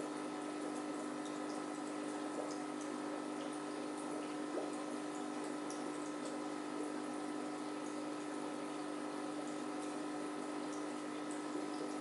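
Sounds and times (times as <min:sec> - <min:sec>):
aquarium pump humming: 0:00.0 - 0:12.0
faint drips: 0:00.0 - 0:12.0
water bubbling and trickling: 0:00.0 - 0:12.0.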